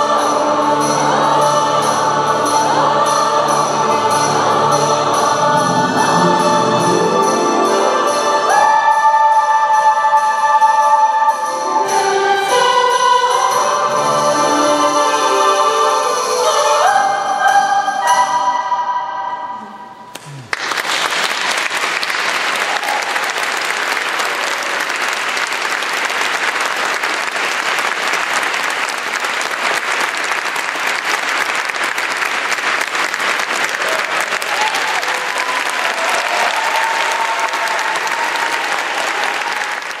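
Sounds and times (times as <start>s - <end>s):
choir singing: 0.0s - 20.0s
audience applauding: 20.1s - 40.0s.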